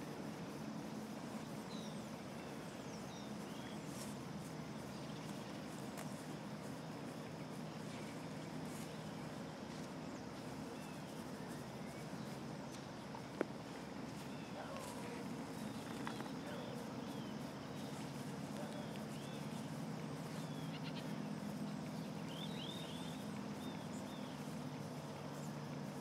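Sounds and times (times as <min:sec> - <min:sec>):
outdoor background hum: 0:00.0 - 0:26.0
faint bird chirps: 0:00.4 - 0:26.0.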